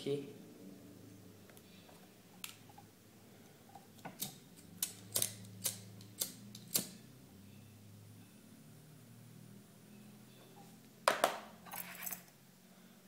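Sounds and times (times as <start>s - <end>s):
lighter spark wheel clicks: 4.2s - 7.0s.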